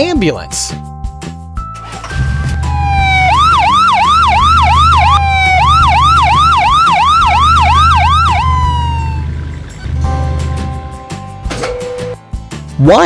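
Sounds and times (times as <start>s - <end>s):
cartoon ambulance siren: 2.2s - 9.4s.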